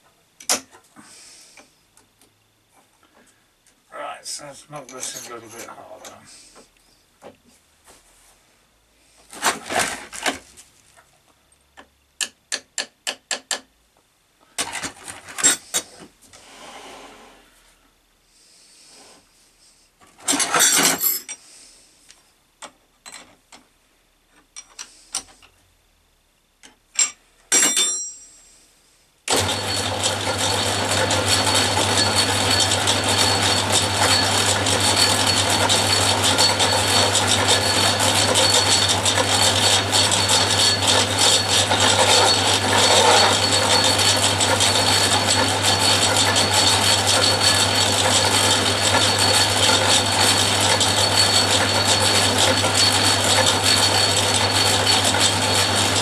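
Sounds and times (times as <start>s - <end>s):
lathe motor humming: 29.3s - 56.0s.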